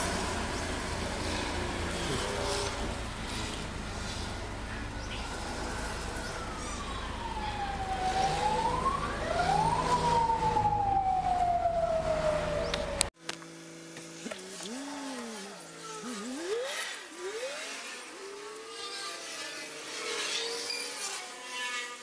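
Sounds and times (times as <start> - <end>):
low engine hum: 0.0 - 13.2
siren wailing: 4.8 - 13.1.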